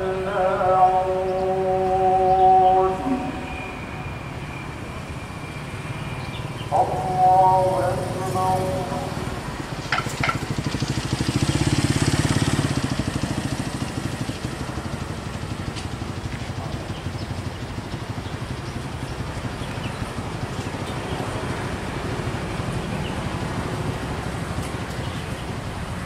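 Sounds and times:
motorcycle engine running: 7.6s - 26.0s.

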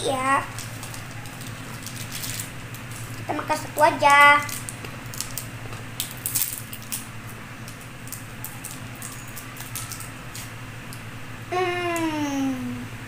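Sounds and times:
plastic sweet wrapper crinkling: 0.2s - 10.5s.

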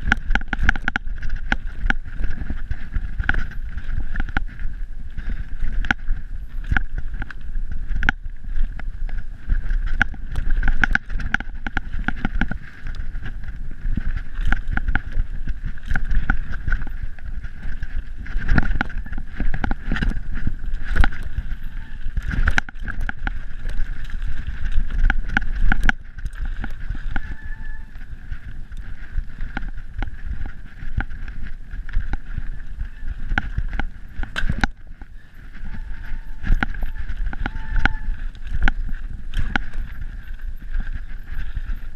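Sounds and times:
bike knocking and rattling: 0.0s - 41.9s
rumble of tyres and air: 0.0s - 41.9s.

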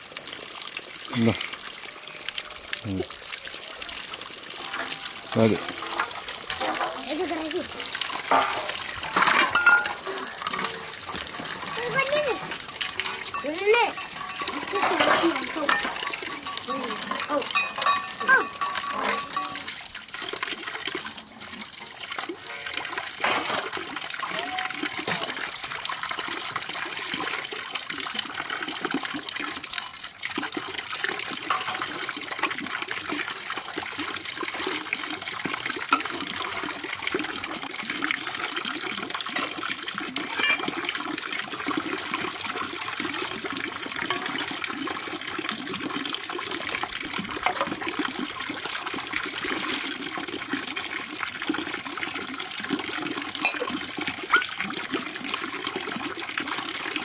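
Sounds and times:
tap water splashing into wok: 4.5s - 21.0s, 22.0s - 50.9s, 52.6s - 54.9s
metal dishes knocking: 4.6s - 7.0s, 8.2s - 11.8s, 13.0s - 16.7s, 40.3s - 40.7s.

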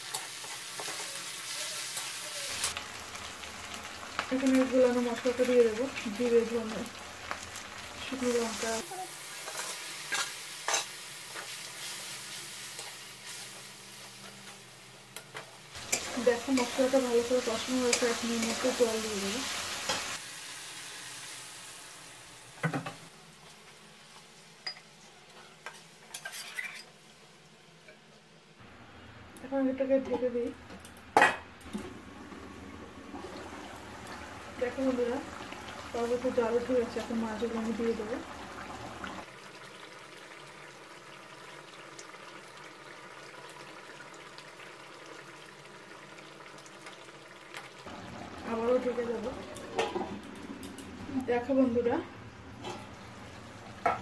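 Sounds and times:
water sizzling in hot pan: 0.0s - 27.5s, 31.6s - 54.0s
spatula scraping a pan: 25.3s - 27.0s
curry bubbling and hissing: 31.7s - 53.9s.

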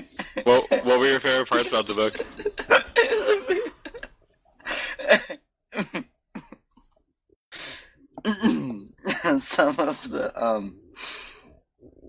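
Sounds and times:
person reading aloud: 0.5s - 2.4s.

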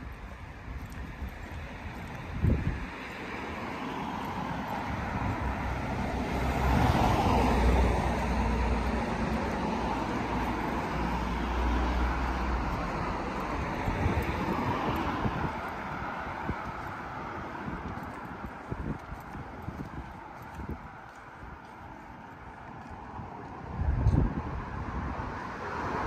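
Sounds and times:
cars passing on road: 0.0s - 26.0s.

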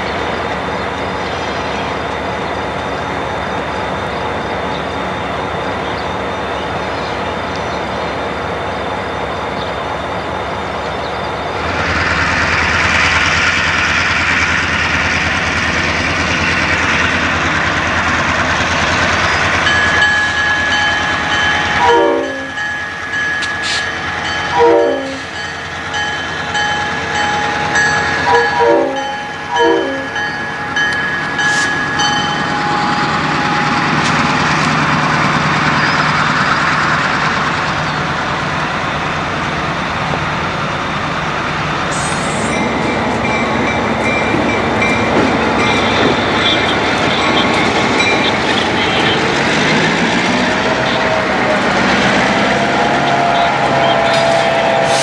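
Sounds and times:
diesel locomotive rumble: 0.0s - 55.0s
freight cars rolling: 0.0s - 55.0s
high-pitched tone: 19.6s - 34.6s.

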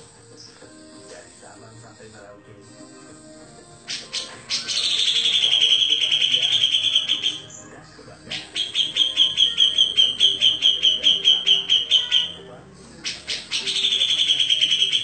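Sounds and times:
bulbul trilling: 3.7s - 15.0s
sharp repeated bird notes: 3.8s - 15.0s.

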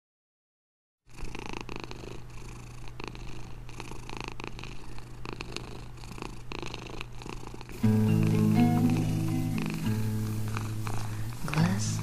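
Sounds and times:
cat purring: 1.1s - 12.0s
low steady hum: 7.7s - 12.0s.

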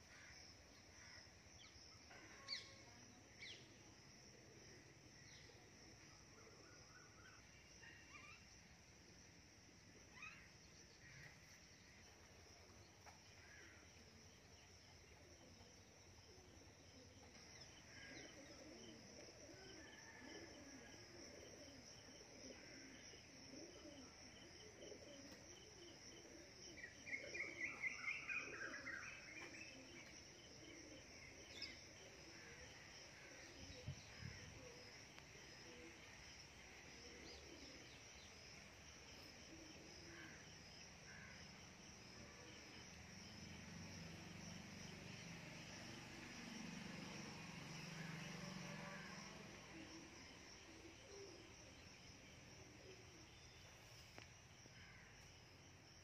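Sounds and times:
insects droning: 0.0s - 56.0s.

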